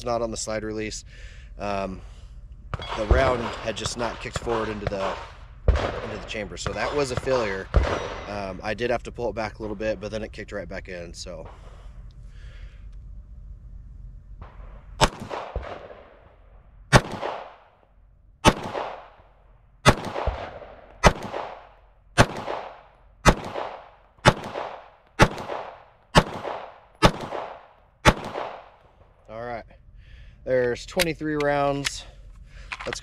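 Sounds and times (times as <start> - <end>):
pistol shots with echo: 2.7 - 8.5, 15.0 - 16.3, 16.9 - 17.7, 18.4 - 29.1.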